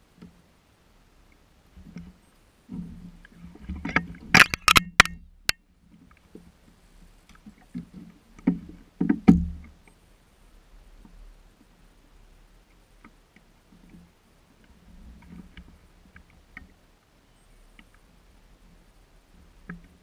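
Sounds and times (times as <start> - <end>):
knocks and thumps on kayak hull: 7.8 - 9.8.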